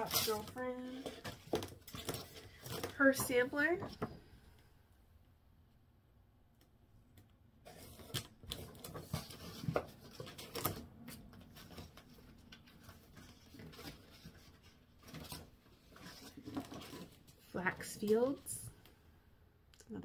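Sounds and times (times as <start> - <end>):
paper and cardboard rustling: 0.0 - 4.2, 7.6 - 18.7.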